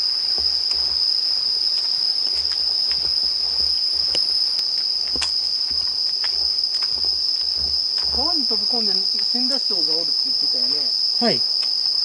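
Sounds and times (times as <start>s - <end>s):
faint footsteps on pavement: 0.0s - 9.7s
night insects trilling: 0.0s - 12.0s.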